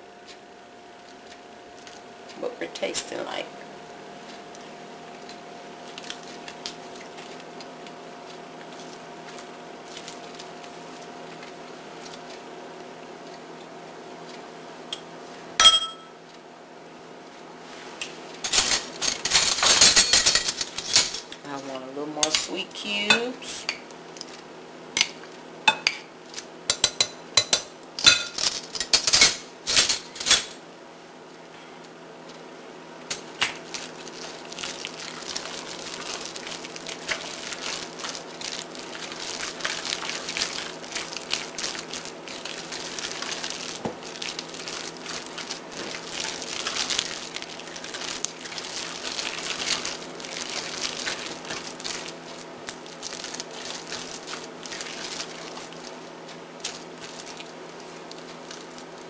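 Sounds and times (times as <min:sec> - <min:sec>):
steady hum: 0:00.0 - 0:59.0
spatula stirring salad in bowl: 0:04.0 - 0:14.5, 0:33.1 - 0:59.0
metal spoon clinking on glass bowl: 0:15.6 - 0:16.1.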